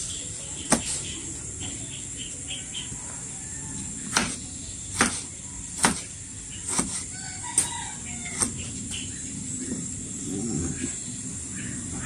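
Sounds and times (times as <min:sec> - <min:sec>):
knife striking cutting board: 0:04.1 - 0:04.4, 0:05.0 - 0:06.1, 0:06.7 - 0:07.0.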